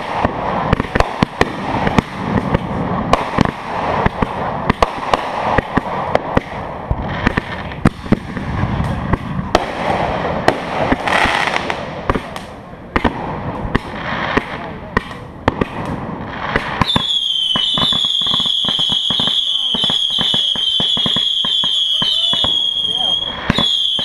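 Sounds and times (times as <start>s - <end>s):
fireworks pops and bangs: 0.0s - 24.0s
fireworks hissing: 9.6s - 12.5s.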